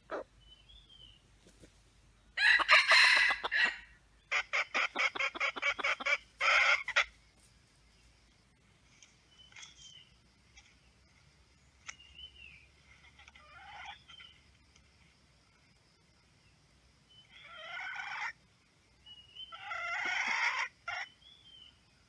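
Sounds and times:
rooster crowing and clucking: 2.4s - 7.1s.

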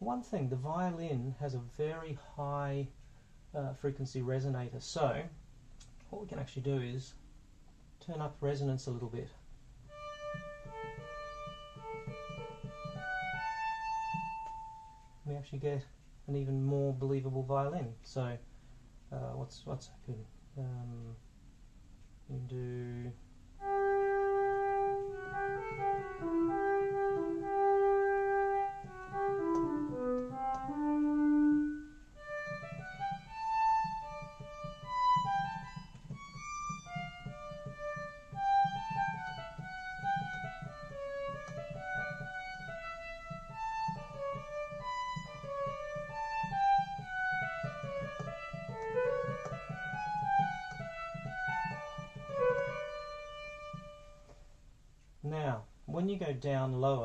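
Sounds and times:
synthesizer violin melody: 9.9s - 15.4s, 23.6s - 54.3s.

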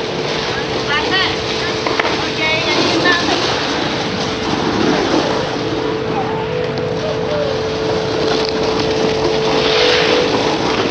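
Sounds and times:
constant hum: 0.0s - 10.9s
mechanical drone: 0.0s - 10.9s.

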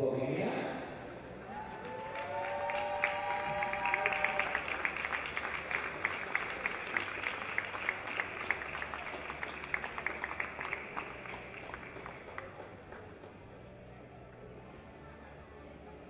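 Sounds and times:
audience applause: 1.4s - 13.3s.

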